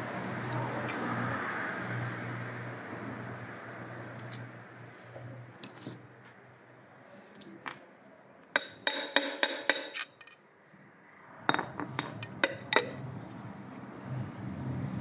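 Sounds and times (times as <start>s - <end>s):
metal bar clinking on engine parts: 8.6s - 10.4s, 11.5s - 13.0s.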